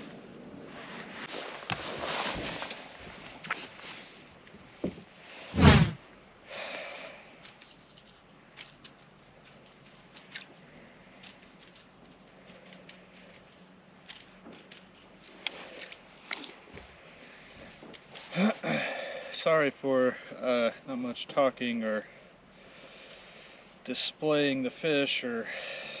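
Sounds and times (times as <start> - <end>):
loud whoosh: 5.6 - 6.0.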